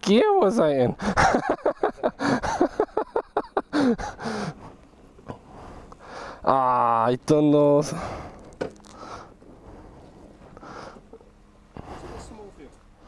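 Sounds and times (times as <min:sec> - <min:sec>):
man talking: 0:06.5 - 0:08.1, 0:11.9 - 0:12.8.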